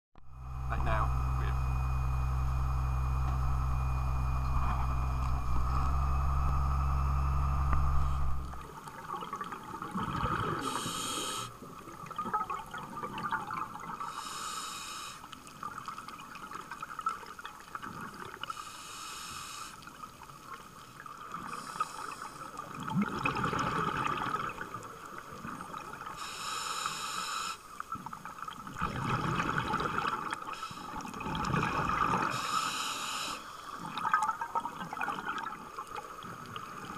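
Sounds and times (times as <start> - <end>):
boat engine humming: 0.2 - 8.9, 10.6 - 11.6
exhaled air bubbling underwater: 0.3 - 36.9
regulator hissing on inhale: 10.6 - 11.6, 14.0 - 15.4, 18.5 - 19.9, 21.4 - 22.7, 26.2 - 27.8, 30.5 - 31.2, 32.3 - 33.9.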